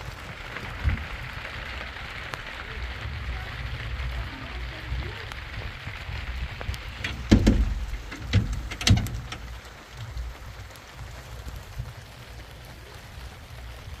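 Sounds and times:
rain: 0:00.0 - 0:14.0
wind buffeting microphone: 0:00.0 - 0:14.0
sharp knocks: 0:07.0 - 0:09.5.

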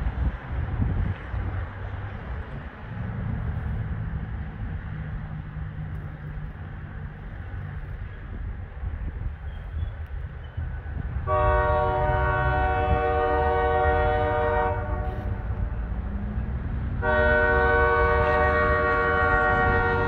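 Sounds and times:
locomotive air horn blasts: 0:11.2 - 0:15.6, 0:17.0 - 0:20.0.

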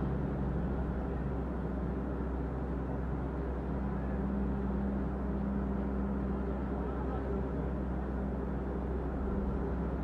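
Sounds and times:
low engine rumble: 0:00.0 - 0:10.0
outdoor background noise: 0:00.0 - 0:10.0.

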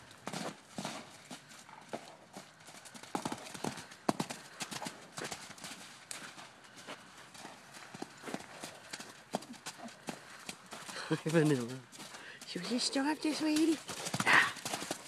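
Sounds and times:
horse hoofbeats on dirt: 0:00.0 - 0:15.0.

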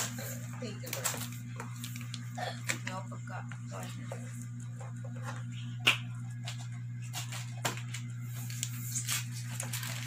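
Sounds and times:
steady low hum: 0:00.0 - 0:10.0
wrapping paper being handled: 0:07.1 - 0:10.0.

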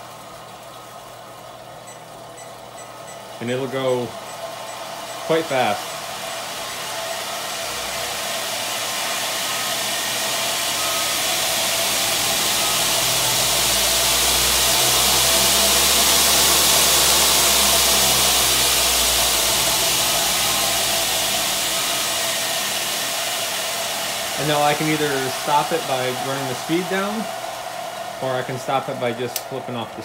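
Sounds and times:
belt grinder whirring: 0:03.0 - 0:30.0.

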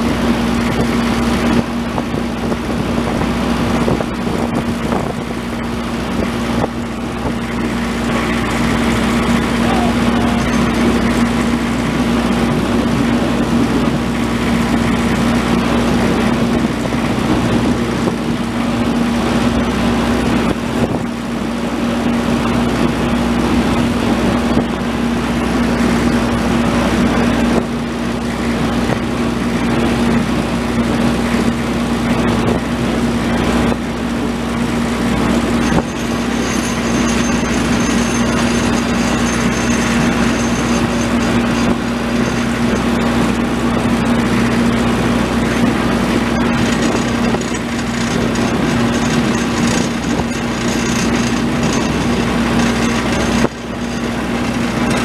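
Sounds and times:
locomotive engine running: 0:00.0 - 0:55.0
wagons rolling on track: 0:35.5 - 0:43.0, 0:46.4 - 0:55.0.

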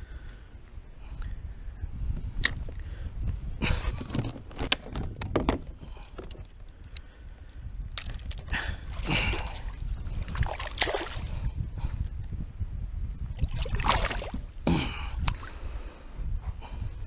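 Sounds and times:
water splashing in a net: 0:10.3 - 0:11.3, 0:13.4 - 0:14.4.

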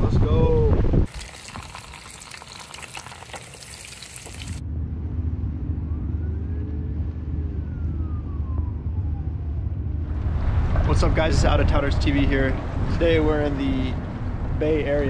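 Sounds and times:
fish frying in oil: 0:01.1 - 0:04.6
low rumble with drone: 0:04.6 - 0:15.0.

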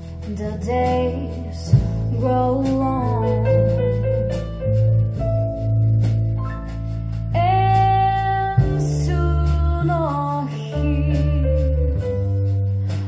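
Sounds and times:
instrumental backing music: 0:00.0 - 0:13.0
low bass notes: 0:00.0 - 0:13.0
person singing: 0:07.4 - 0:12.2.

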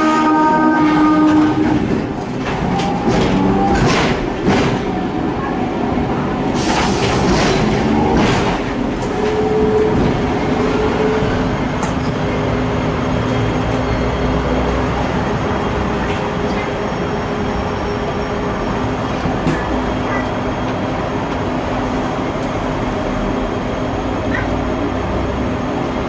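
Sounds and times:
wheels clacking over rail joints: 0:00.0 - 0:17.0
tram rumbling and rattling: 0:00.0 - 0:26.0.

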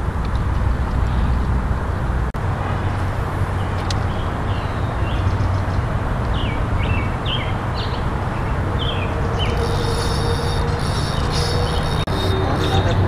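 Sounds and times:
low rumbling noise: 0:00.0 - 0:13.0
bird chirping: 0:04.0 - 0:13.0.

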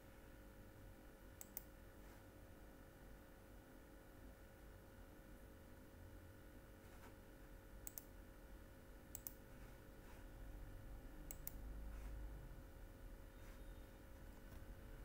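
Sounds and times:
faint steady hum: 0:00.0 - 0:15.0
computer mouse clicks: 0:01.4 - 0:01.8, 0:07.8 - 0:08.2, 0:09.1 - 0:09.4, 0:11.2 - 0:11.7.

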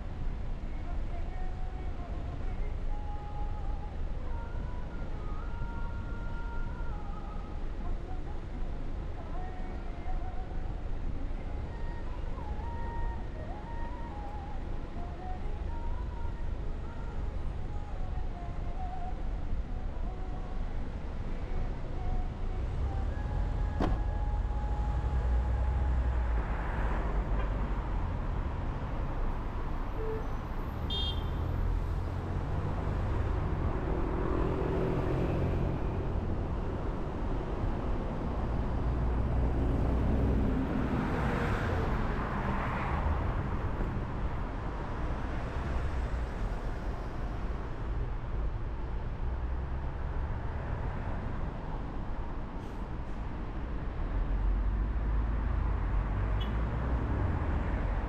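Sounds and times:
car road and engine rumble: 0:00.0 - 0:58.0
vehicles passing: 0:20.8 - 0:58.0.

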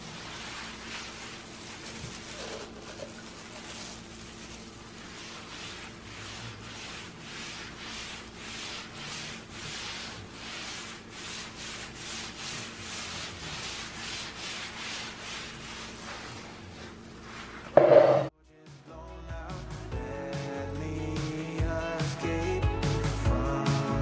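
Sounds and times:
rag rubbing on wood: 0:00.0 - 0:18.3.

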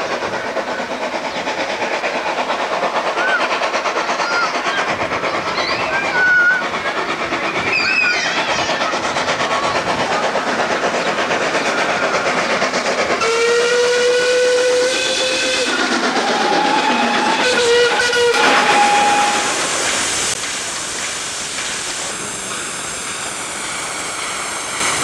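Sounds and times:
steam train hiss and clatter: 0:00.0 - 0:25.0
higher steady whistle tone: 0:13.2 - 0:19.6
steam locomotive whistle: 0:13.2 - 0:19.7.

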